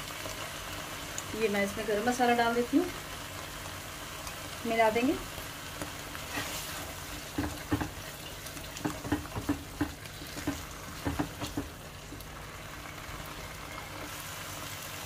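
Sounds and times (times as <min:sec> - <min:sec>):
food sizzling in a pan: 0:00.0 - 0:15.0
utensil scraping a pan: 0:06.2 - 0:11.7.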